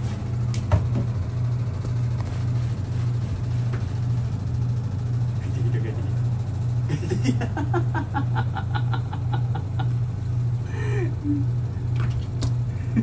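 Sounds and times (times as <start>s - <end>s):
steady low hum: 0.0s - 13.0s
brush scrubbing bathtub: 2.2s - 4.1s.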